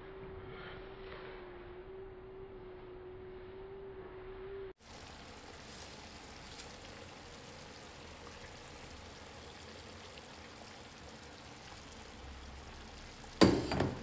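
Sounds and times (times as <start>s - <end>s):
meat sizzling in a pan: 4.8s - 14.0s.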